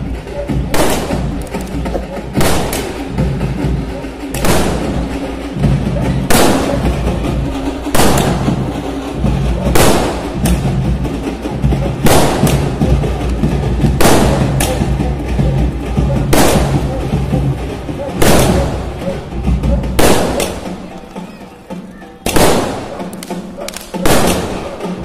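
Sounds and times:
music: 0:00.0 - 0:25.0
firework shells bursting: 0:00.8 - 0:03.2, 0:07.6 - 0:08.8, 0:22.2 - 0:25.0.

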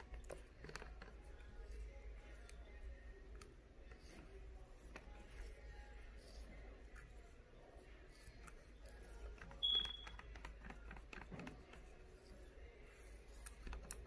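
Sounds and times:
stir stick scraping plastic cup: 0:00.0 - 0:03.0, 0:03.8 - 0:14.0
short high-pitched beep: 0:09.6 - 0:10.1.

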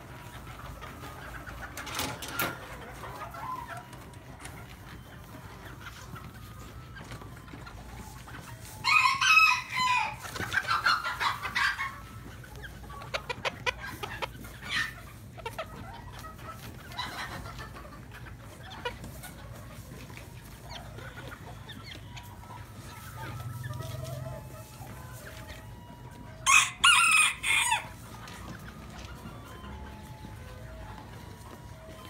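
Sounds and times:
chickens clucking: 0:00.0 - 0:32.0
rooster crowing: 0:26.4 - 0:27.9.

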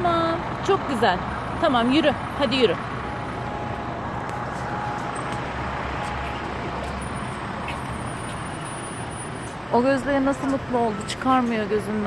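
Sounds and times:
road traffic passing: 0:00.0 - 0:12.0.

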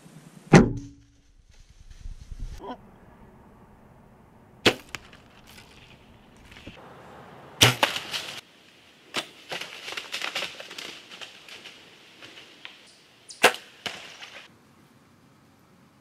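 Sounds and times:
sharp crack of bow shot: 0:04.6 - 0:05.1, 0:07.6 - 0:08.4, 0:13.4 - 0:14.3
deer running through dry leaves: 0:04.8 - 0:06.8, 0:07.7 - 0:08.5, 0:09.1 - 0:12.9.

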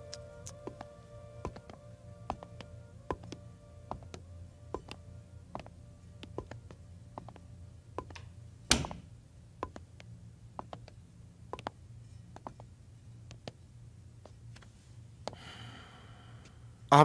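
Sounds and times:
hard shoes clicking on tiles: 0:00.0 - 0:07.4, 0:08.0 - 0:08.3, 0:09.6 - 0:13.6
low steady hum: 0:00.0 - 0:17.0.

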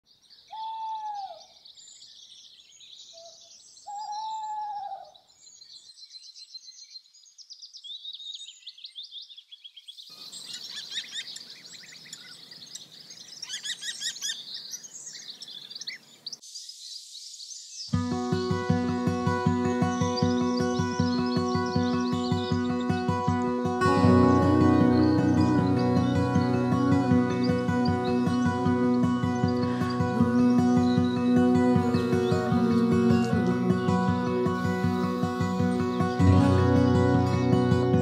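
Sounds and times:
songbirds twittering: 0:00.1 - 0:38.0
lower bird call: 0:00.5 - 0:01.6, 0:03.1 - 0:05.3
music: 0:18.0 - 0:38.0.

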